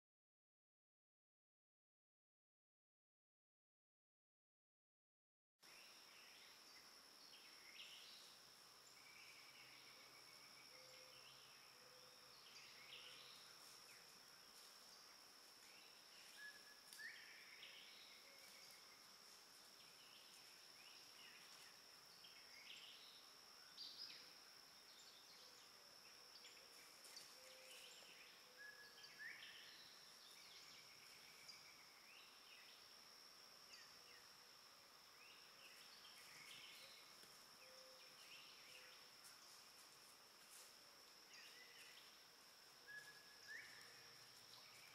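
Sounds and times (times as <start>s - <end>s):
bird calls: 25.0s - 32.7s.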